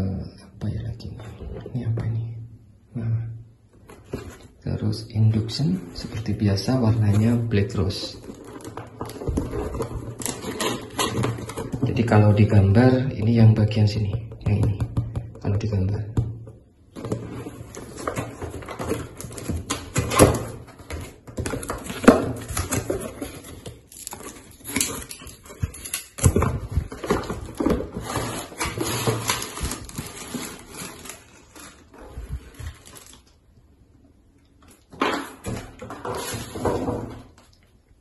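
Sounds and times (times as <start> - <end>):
cardboard rustling and scraping: 3.8 - 4.6, 5.2 - 12.5, 16.9 - 33.2, 35.0 - 37.4.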